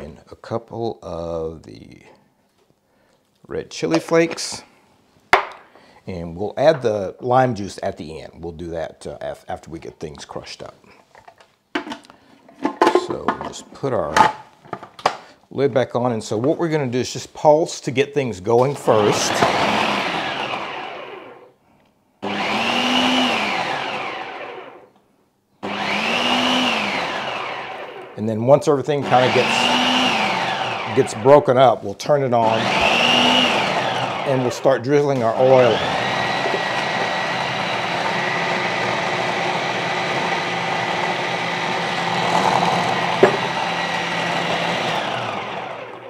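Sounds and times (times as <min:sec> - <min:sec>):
food processor motor whine: 0:18.8 - 0:21.5, 0:22.2 - 0:24.9, 0:25.6 - 0:28.2, 0:29.0 - 0:31.4, 0:32.4 - 0:46.0.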